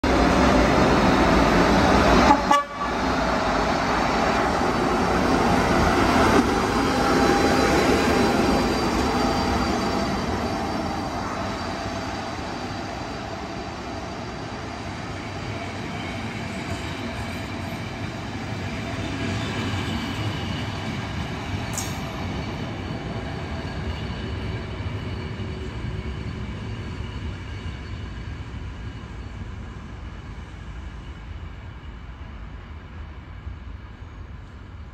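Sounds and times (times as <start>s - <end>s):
train coaches rolling on rails: 0.1s - 34.9s
train horn: 2.2s - 3.0s.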